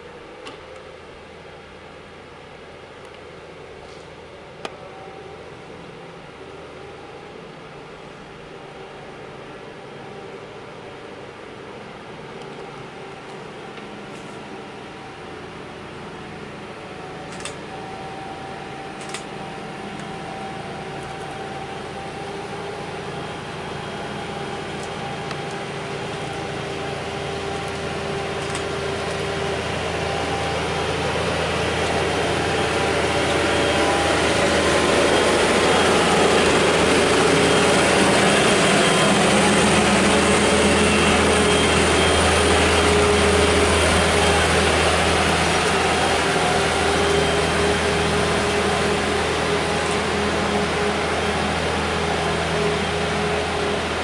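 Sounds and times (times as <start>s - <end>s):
vehicle engine running: 20.8s - 54.0s.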